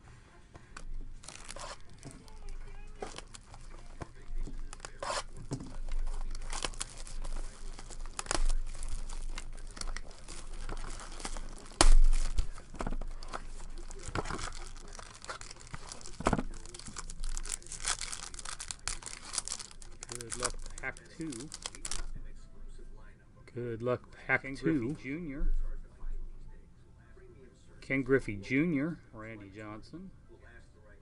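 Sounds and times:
foil wrapper tearing and crinkling: 0.8s - 22.1s.

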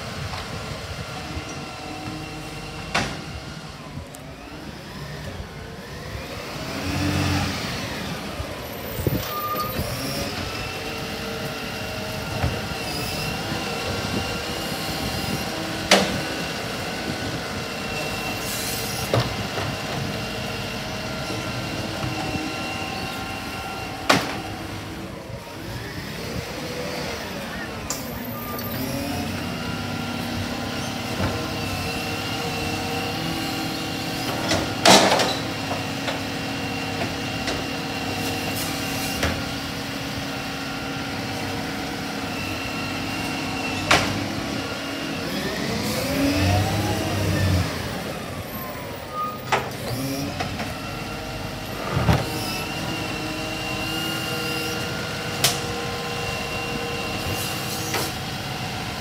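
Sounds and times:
garbage truck engine running: 0.0s - 59.0s
hydraulic lift arm whining: 0.2s - 59.0s.

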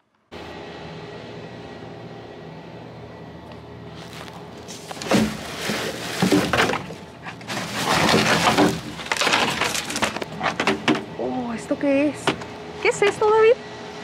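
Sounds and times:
cardboard and paper handling noises: 3.9s - 11.0s.

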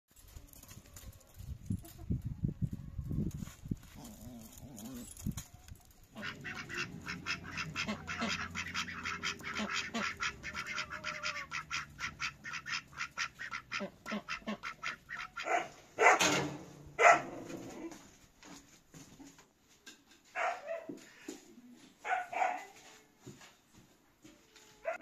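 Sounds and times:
ducks quacking: 6.1s - 15.7s.

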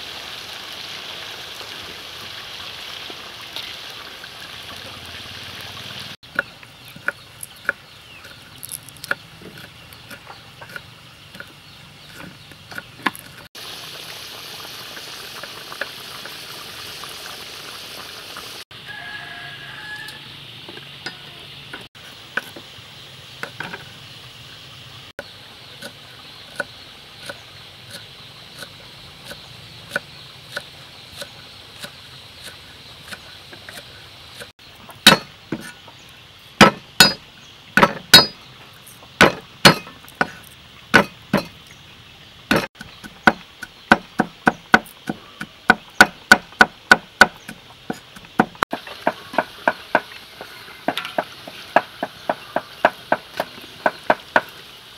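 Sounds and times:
food sizzling in a wok: 0.0s - 6.2s, 13.6s - 34.5s, 48.7s - 54.9s
knife chopping on wooden block: 35.1s - 35.7s, 36.6s - 37.2s, 39.2s - 40.4s, 41.0s - 41.5s, 42.5s - 50.1s.

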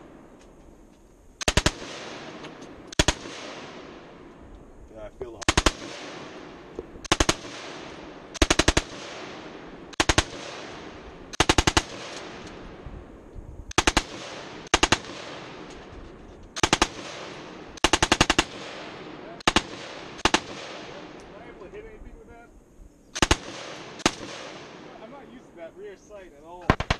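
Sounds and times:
machine gun bursts with echo: 1.4s - 4.1s, 5.4s - 12.7s, 13.7s - 15.7s, 16.6s - 21.2s, 23.1s - 25.2s, 26.6s - 26.9s.

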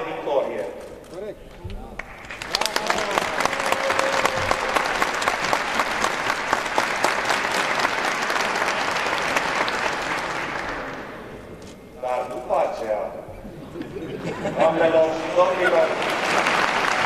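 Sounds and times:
crowd applauding: 1.9s - 11.4s, 14.8s - 17.0s.

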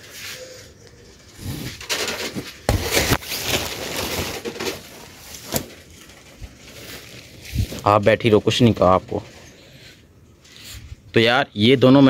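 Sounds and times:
plastic curtain rustling: 1.1s - 9.5s.

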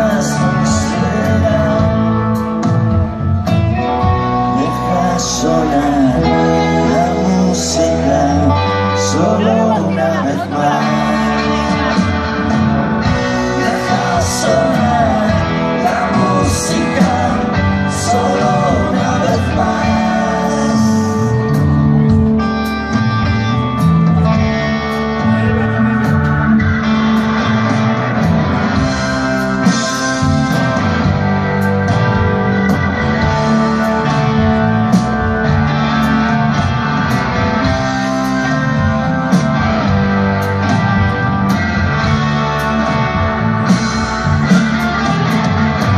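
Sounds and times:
live rock band playing: 0.0s - 45.9s.

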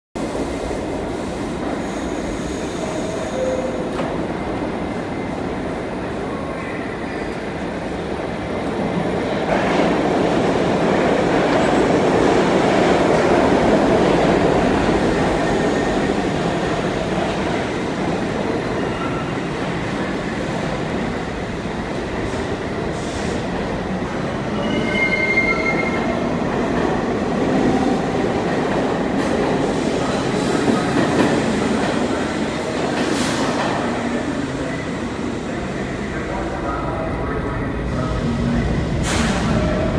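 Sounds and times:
subway train rumble: 0.2s - 39.9s
high wheel squeals: 24.5s - 26.2s.

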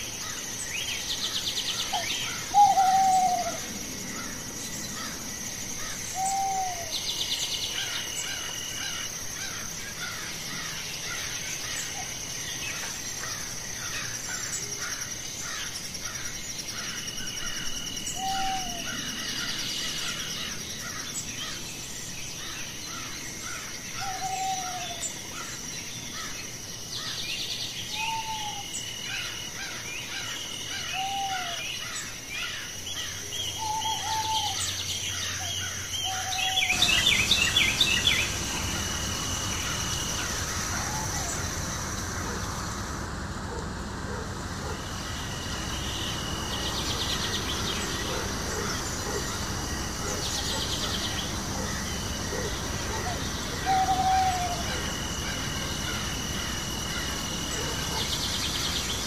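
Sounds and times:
high insect trill: 0.0s - 59.0s
background hiss: 31.6s - 59.0s.

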